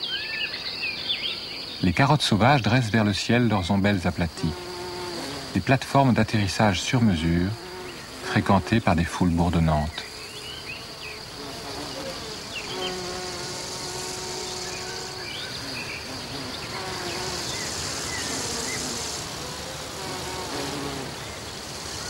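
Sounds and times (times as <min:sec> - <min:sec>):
steady high hiss: 0:00.0 - 0:22.0
insects buzzing in flight: 0:01.1 - 0:22.0.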